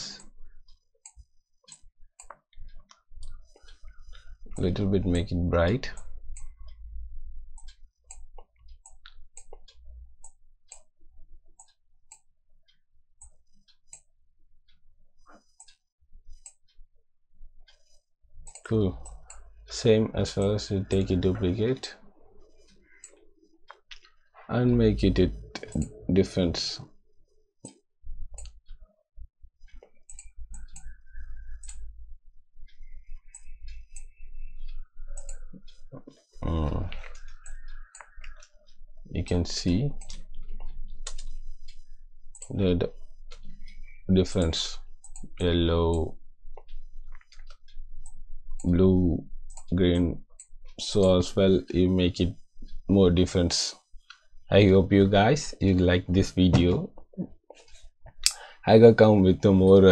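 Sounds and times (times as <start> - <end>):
computer mouse clicking: 7.5 - 10.9, 17.7 - 19.5, 25.3 - 26.0, 27.6 - 28.8, 29.6 - 32.0, 32.8 - 38.6, 39.3 - 48.8, 49.5 - 49.8.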